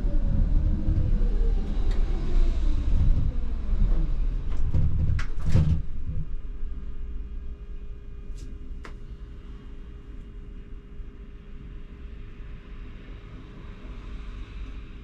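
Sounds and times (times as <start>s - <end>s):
tram wheels rumbling: 0.0s - 9.4s
tram electric drive whine: 0.0s - 15.0s.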